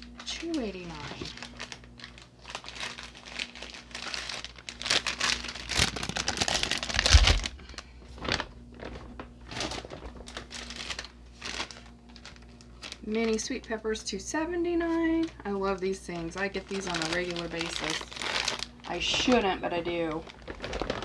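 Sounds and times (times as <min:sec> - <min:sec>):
plastic bags crinkling: 0:00.0 - 0:21.0.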